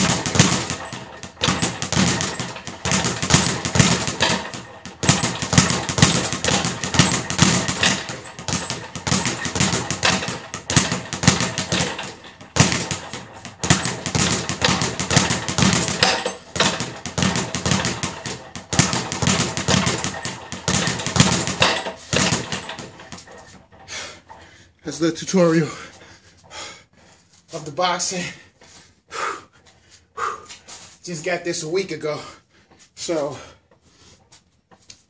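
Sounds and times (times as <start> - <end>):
speed bag rattling knocks: 0.0 - 24.6
man talking: 24.8 - 25.9, 27.5 - 28.5, 31.0 - 32.4, 33.0 - 33.5.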